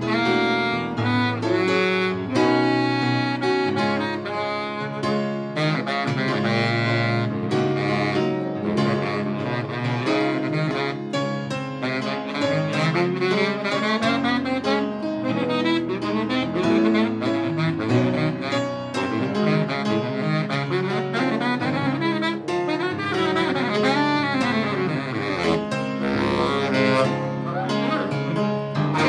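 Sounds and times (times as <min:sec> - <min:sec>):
baritone saxophone: 0:00.0 - 0:29.0
trombone: 0:00.0 - 0:29.0.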